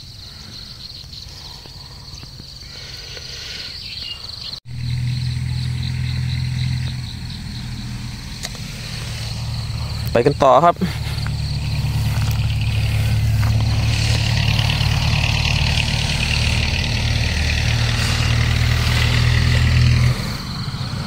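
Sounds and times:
small engine running: 4.7 - 21.0.

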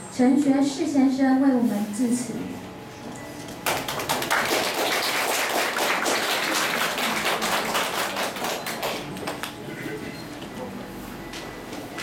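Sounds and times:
audience clapping: 3.6 - 9.6.

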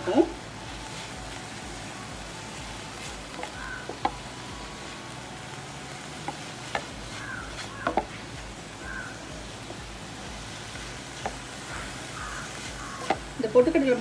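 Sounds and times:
low sizzle: 0.0 - 14.0
spatula tapping a pan: 3.3 - 4.8, 6.0 - 13.4.

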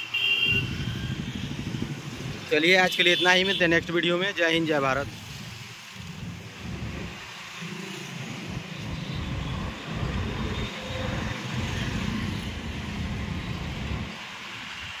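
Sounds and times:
road traffic rumble on bridge: 0.5 - 2.6, 4.8 - 15.0
wind buffeting microphone: 0.6 - 2.5, 5.0 - 7.3, 8.2 - 14.2.

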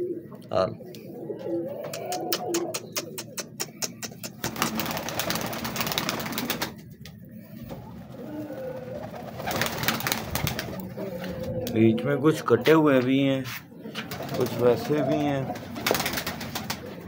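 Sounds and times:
pigeons cooing: 0.0 - 13.0, 13.7 - 17.0
pigeons pecking on hard floor: 1.8 - 7.8.

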